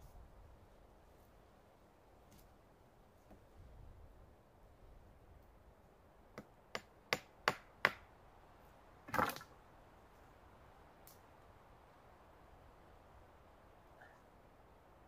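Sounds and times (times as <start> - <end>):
hatchet knocking on wooden pole: 6.4 - 8.0.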